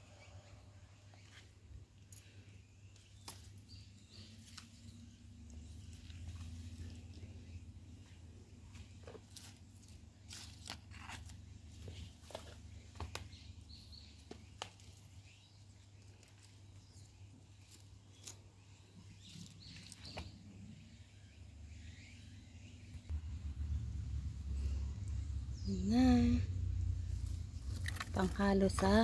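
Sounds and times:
low rumble: 23.1 - 28.1.

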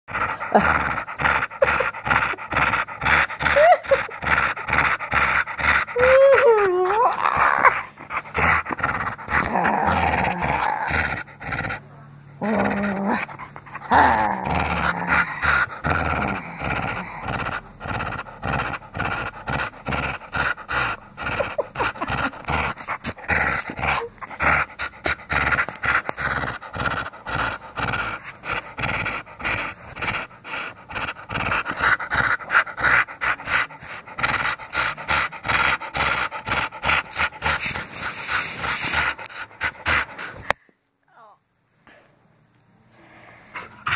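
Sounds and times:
dog panting: 0.1 - 40.6, 43.4 - 43.9
dog wavering vocal sounds: 0.1 - 40.6.

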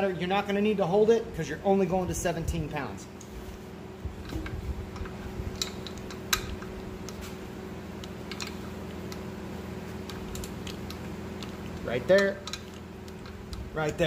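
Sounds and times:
steady low hum: 0.0 - 14.0
torque wrench ratcheting clicks: 10.1 - 14.0.

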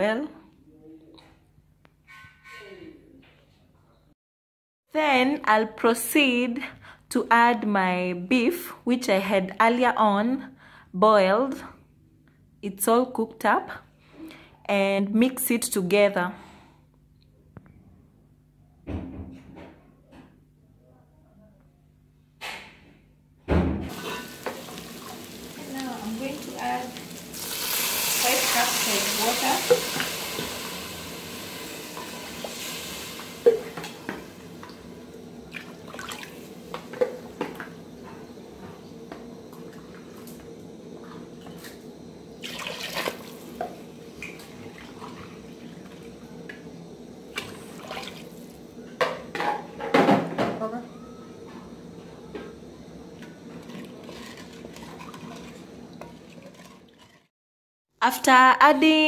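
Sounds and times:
water pouring into metal pot: 26.4 - 33.7, 42.4 - 43.6.

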